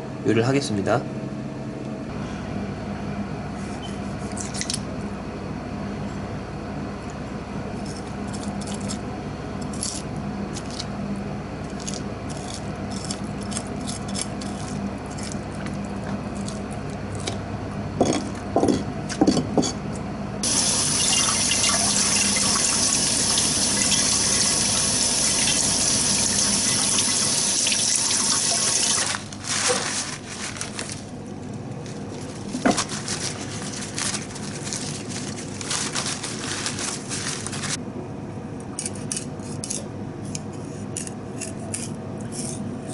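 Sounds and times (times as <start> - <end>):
steady low hum: 0.0 - 42.9
tap water running into a sink: 20.4 - 29.1.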